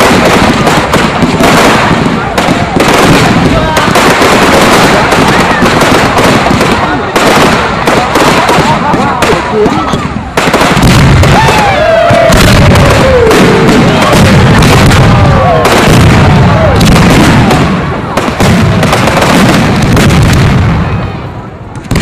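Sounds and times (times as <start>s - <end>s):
fireworks bangs and crackling: 0.0s - 22.0s
whistling fireworks: 0.0s - 22.0s.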